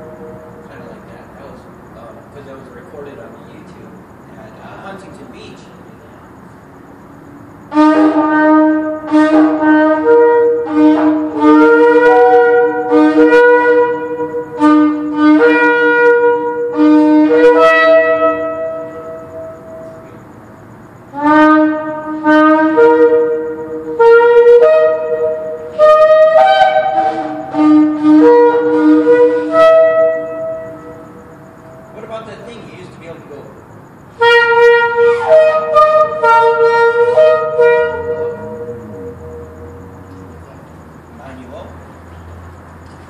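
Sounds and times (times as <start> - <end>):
horn blasts echoing: 0.0 - 3.7, 7.6 - 20.4, 21.0 - 33.4, 34.1 - 41.7.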